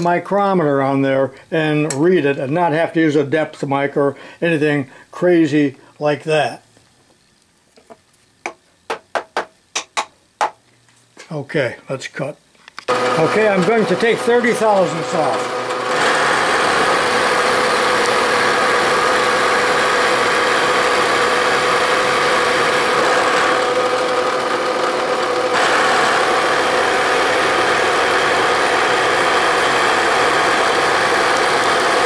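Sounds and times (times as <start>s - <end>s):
milling machine cutting metal: 12.9s - 32.0s
spindle running: 12.9s - 32.0s.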